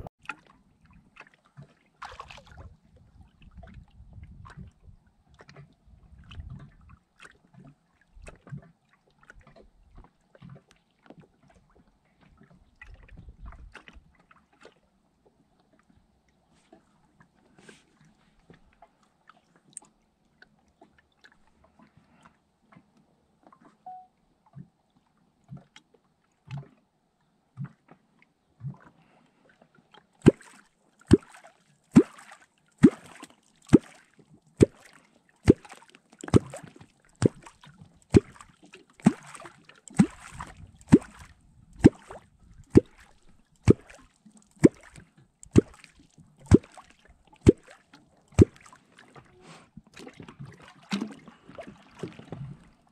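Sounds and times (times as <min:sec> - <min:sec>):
wooden clonk plopping in water: 0:30.2 - 0:30.5, 0:31.1 - 0:31.4, 0:32.0 - 0:34.0, 0:35.5 - 0:37.5, 0:38.1 - 0:43.0, 0:44.6 - 0:45.8, 0:48.4 - 0:48.7.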